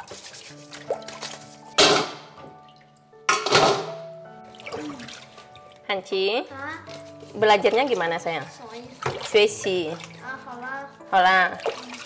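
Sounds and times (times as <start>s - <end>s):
water dripping: 0.0s - 12.0s
crabs clanging into a metal bowl: 1.1s - 2.4s, 3.3s - 4.1s.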